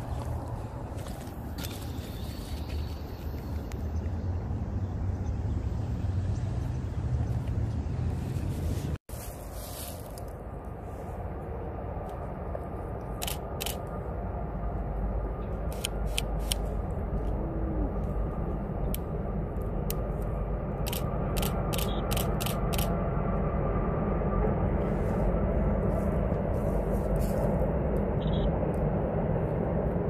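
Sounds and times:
sharp clicks: 20.8 - 22.9.

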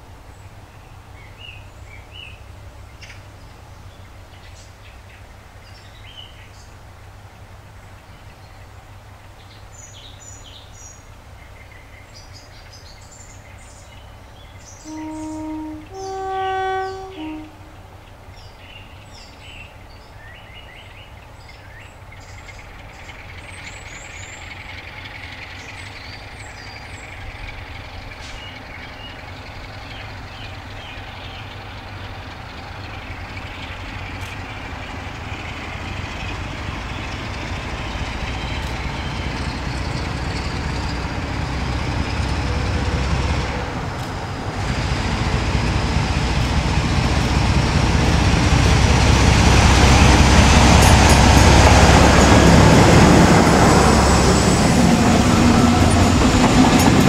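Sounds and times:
birds chirping: 11.6 - 57.0
two-tone horn: 14.8 - 17.8
diesel locomotive engine working hard: 21.9 - 57.0.

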